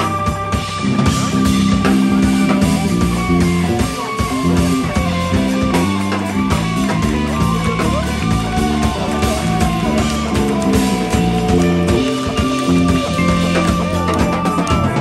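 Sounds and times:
live band playing: 0.0 - 15.0
moving bass line: 0.0 - 15.0.

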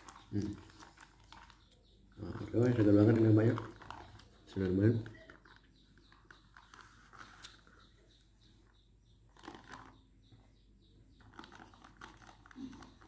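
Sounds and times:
chewing: 0.0 - 7.7, 9.3 - 10.0, 11.2 - 13.0
sipping drink through a straw: 0.0 - 7.9, 11.1 - 13.0.

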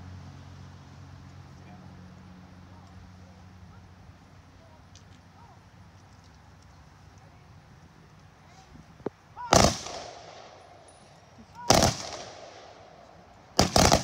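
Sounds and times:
rifle volleys echoing: 9.4 - 14.0.

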